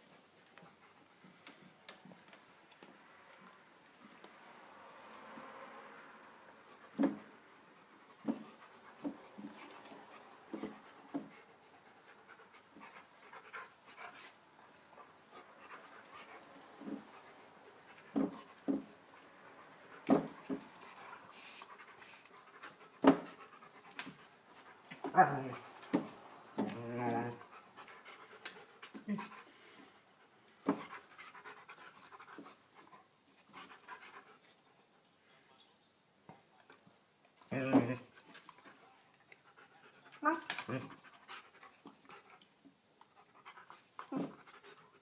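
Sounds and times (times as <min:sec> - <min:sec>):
dog panting: 0:06.0 - 0:35.0, 0:38.0 - 0:45.0
dog whining: 0:25.0 - 0:25.7, 0:26.6 - 0:27.5.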